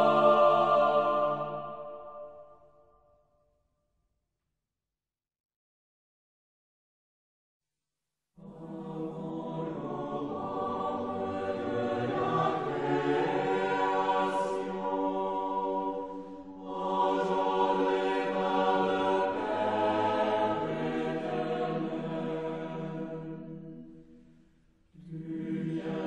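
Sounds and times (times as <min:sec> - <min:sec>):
choir singing slow chant: 0:00.0 - 0:02.8, 0:08.4 - 0:26.0.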